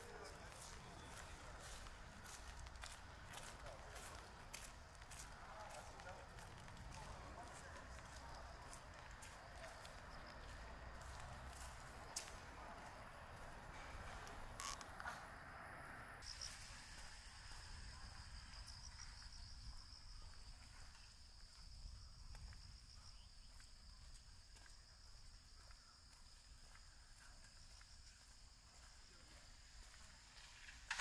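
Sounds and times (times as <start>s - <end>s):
insect chorus trilling: 16.2s - 30.5s.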